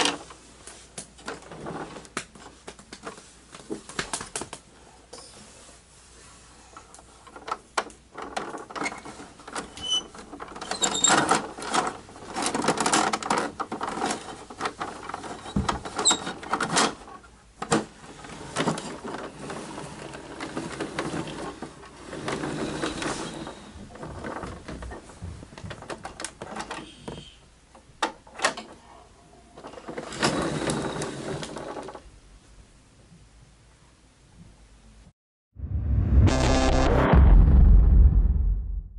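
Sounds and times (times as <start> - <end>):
toy rolling on hardwood floor: 17.9 - 25.8.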